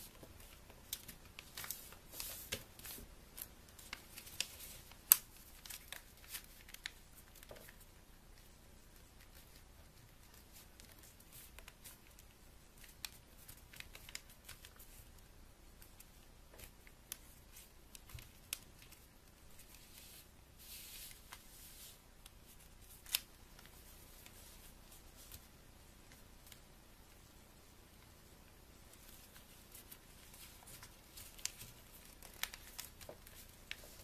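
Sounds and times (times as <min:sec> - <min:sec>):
paper rustling: 0:00.0 - 0:07.8, 0:08.4 - 0:15.1, 0:28.9 - 0:34.0.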